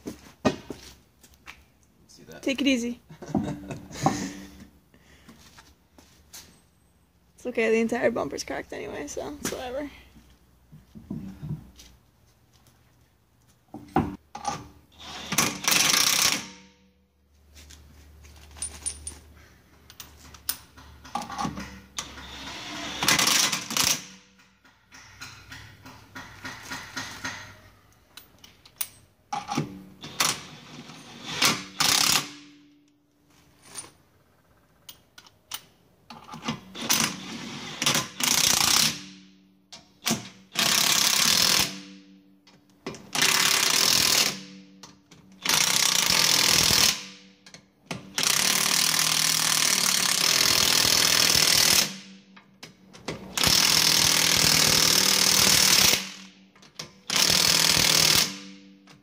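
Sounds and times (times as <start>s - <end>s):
impact wrench hammering bolts: 13.8s - 16.9s, 19.9s - 32.8s, 34.8s - 59.0s.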